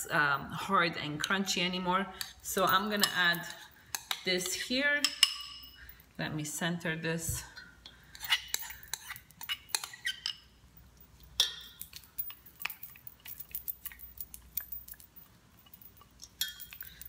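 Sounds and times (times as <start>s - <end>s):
spatula scraping inside bowl: 8.1s - 10.4s.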